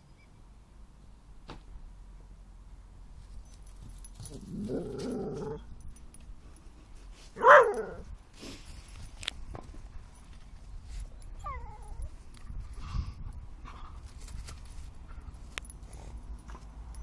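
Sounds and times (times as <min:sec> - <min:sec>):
dog growling: 0:04.4 - 0:05.7
dog sharp bark: 0:07.4 - 0:08.0.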